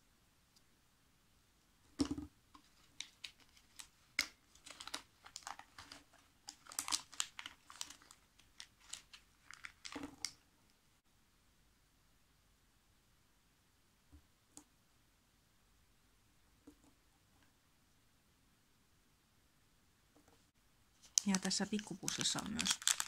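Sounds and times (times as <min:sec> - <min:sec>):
tissue paper crinkling: 0:02.6 - 0:10.1, 0:21.0 - 0:23.0
plastic toy pieces tapping: 0:21.2 - 0:23.0.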